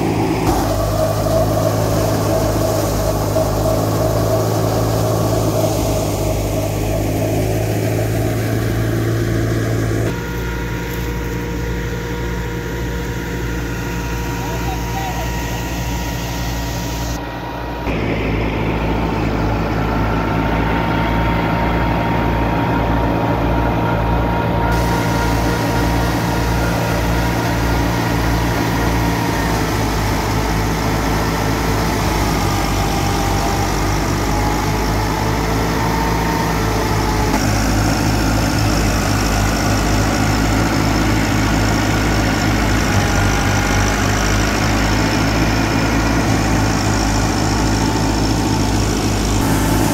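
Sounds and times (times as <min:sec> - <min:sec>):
thresher whirring hum: 0:00.0 - 0:49.9
tractor diesel engine running: 0:00.0 - 0:49.9.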